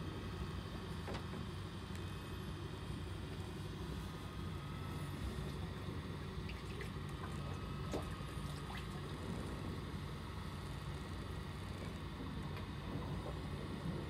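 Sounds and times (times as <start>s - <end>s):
water lapping at hull: 5.2s - 14.0s.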